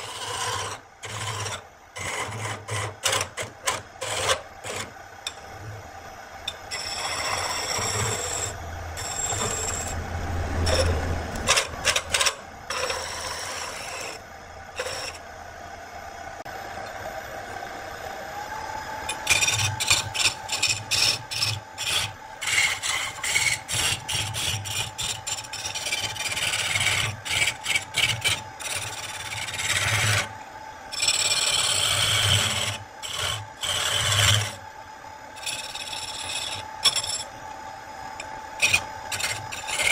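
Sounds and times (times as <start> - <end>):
chisel scraping on wood lathe: 0.0 - 5.4, 6.5 - 10.0, 10.6 - 14.2, 14.8 - 15.2, 19.1 - 30.3, 30.9 - 34.6, 35.4 - 37.3, 38.2 - 39.9
lathe motor hum: 0.0 - 39.9.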